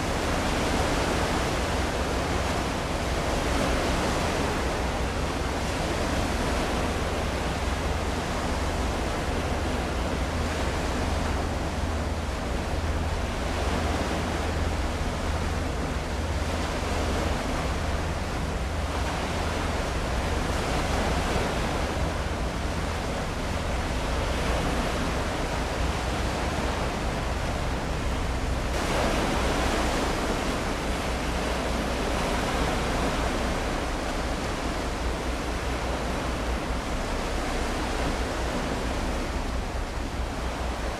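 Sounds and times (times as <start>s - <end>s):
rushing water and wind: 0.0s - 40.9s.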